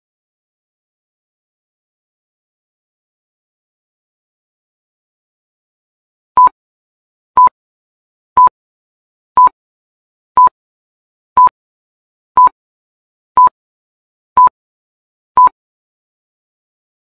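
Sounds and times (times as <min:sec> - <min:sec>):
electronic timer beeps: 0:15.4 - 0:15.6.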